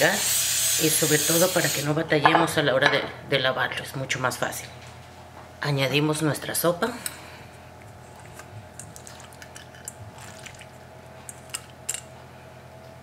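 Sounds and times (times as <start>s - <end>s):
macaroni slithering and plopping: 8.2s - 11.7s.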